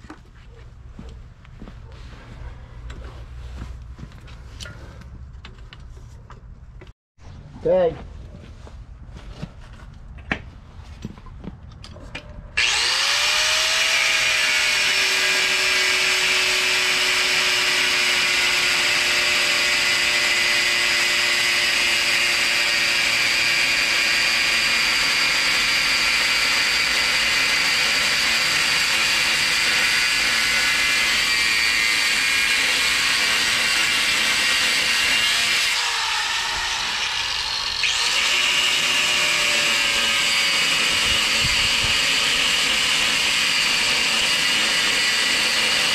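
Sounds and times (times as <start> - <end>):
angle grinder cutting steel: 12.6 - 45.9.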